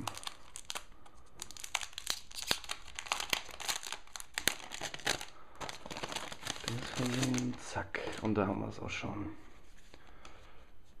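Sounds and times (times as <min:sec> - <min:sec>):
plastic film crinkling: 0:00.0 - 0:08.6.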